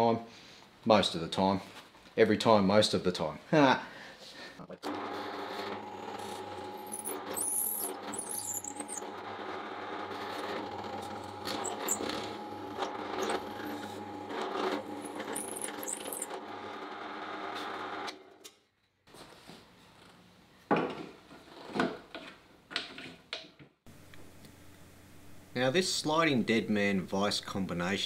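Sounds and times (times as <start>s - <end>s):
drill press boring into wood: 4.8s - 17.9s.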